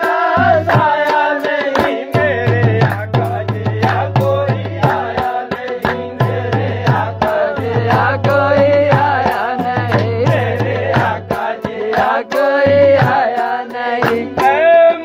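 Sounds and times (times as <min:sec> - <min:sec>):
tabla drumming: 0:00.0 - 0:15.0
person singing: 0:07.6 - 0:15.0.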